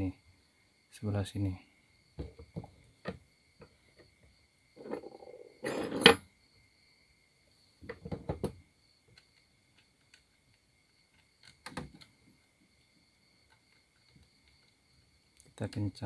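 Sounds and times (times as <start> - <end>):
metal clinking and rattling: 4.8 - 6.2.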